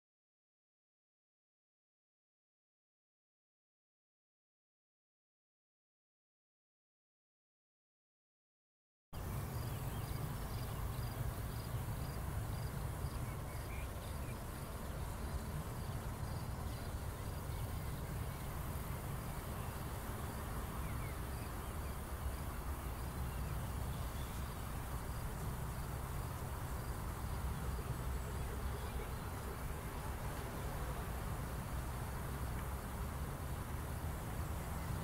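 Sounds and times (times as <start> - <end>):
insects chirping: 9.2 - 35.0.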